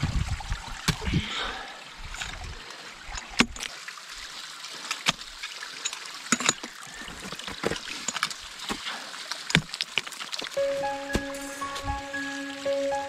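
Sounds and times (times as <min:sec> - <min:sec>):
ice axes striking ice: 0:04.9 - 0:10.4.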